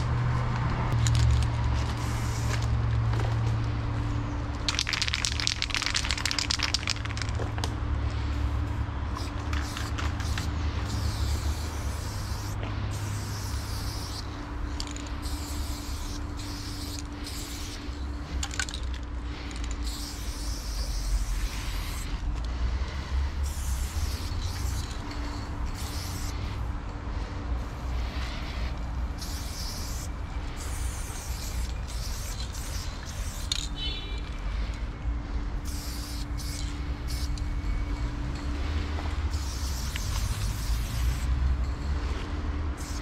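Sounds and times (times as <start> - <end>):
steady low rumble: 0.0 - 43.0
spray-paint can hissing: 1.8 - 2.6, 4.7 - 7.3, 8.4 - 18.5, 19.8 - 22.2, 23.4 - 26.7, 27.6 - 34.0, 35.6 - 37.4, 39.3 - 41.3, 42.8 - 43.0.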